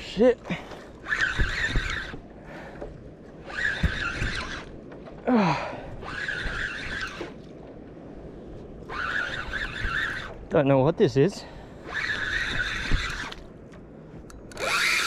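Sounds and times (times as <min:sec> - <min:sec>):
fishing reel whirring grind: 0:00.9 - 0:02.2, 0:03.4 - 0:04.8, 0:05.9 - 0:07.4, 0:08.8 - 0:10.4, 0:11.8 - 0:13.5, 0:14.5 - 0:15.0.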